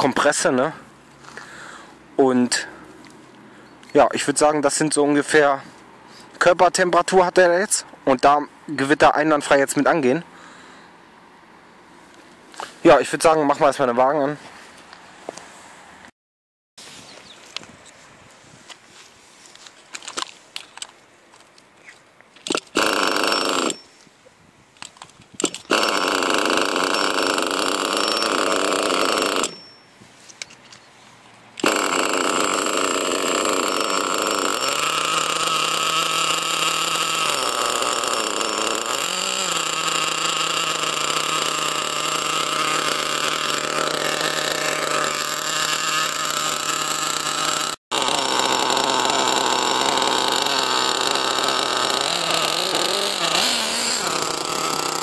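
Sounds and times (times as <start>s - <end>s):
small engine idling: 22.7s - 23.8s, 25.7s - 29.7s, 31.6s - 55.0s
engine throttle blips: 31.6s - 55.0s.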